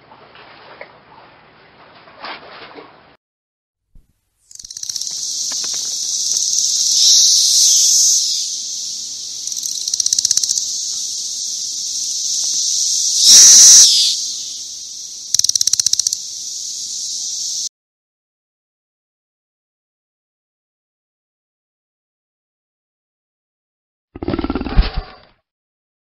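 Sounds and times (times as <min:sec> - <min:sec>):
cicadas buzzing: 0:04.5 - 0:17.7
rapid pulsing cicada bursts: 0:04.5 - 0:17.7.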